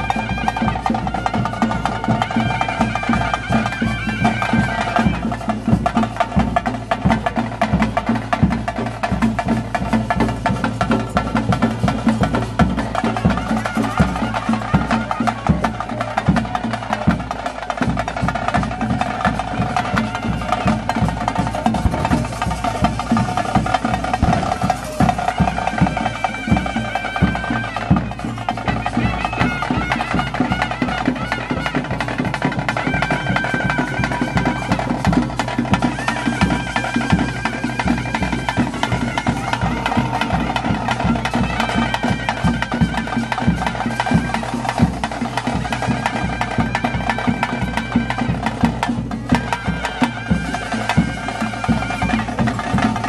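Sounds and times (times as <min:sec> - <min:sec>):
fast steady drumming: 0:00.0 - 0:53.0
shrill reed pipe melody: 0:00.0 - 0:53.0.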